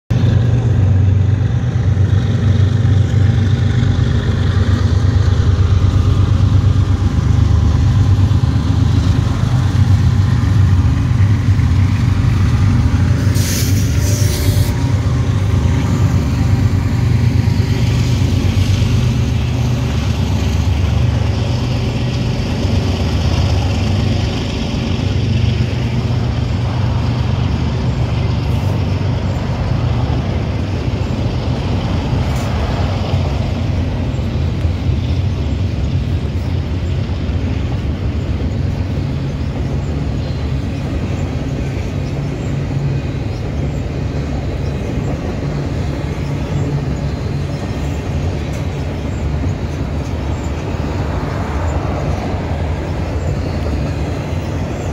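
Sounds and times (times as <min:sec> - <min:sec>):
car road and engine rumble: 0:00.1 - 0:54.9
brief hiss: 0:13.2 - 0:14.7.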